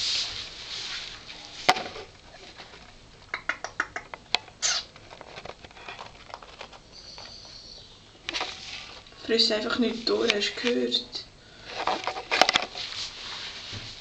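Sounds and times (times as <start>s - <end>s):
short rustle: 11.8s - 14.0s.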